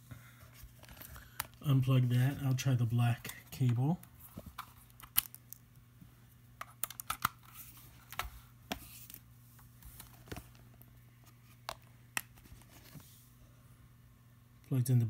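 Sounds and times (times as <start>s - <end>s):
faint steady hum: 0.0s - 15.0s
cable plugging clicks and rattles: 3.6s - 5.6s, 6.6s - 7.5s.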